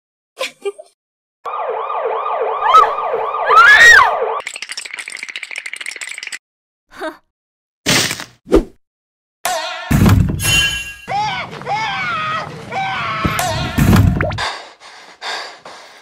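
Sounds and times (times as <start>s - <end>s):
police siren yelp: 1.5s - 4.4s.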